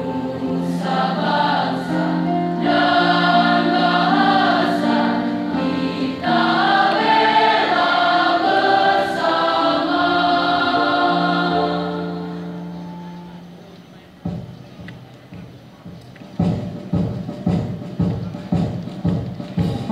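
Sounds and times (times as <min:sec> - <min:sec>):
choir singing in harmony: 0:00.0 - 0:13.4
electronic keyboard accompaniment: 0:00.0 - 0:19.9.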